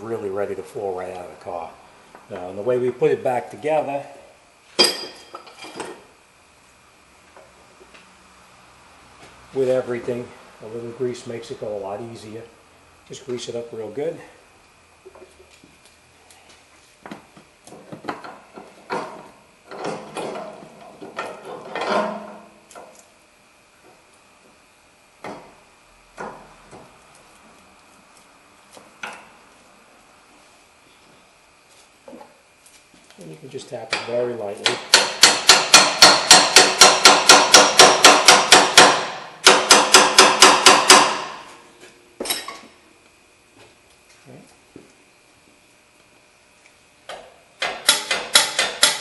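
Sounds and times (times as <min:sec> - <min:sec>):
metal parts clunking and rattling: 0:18.0 - 0:22.4.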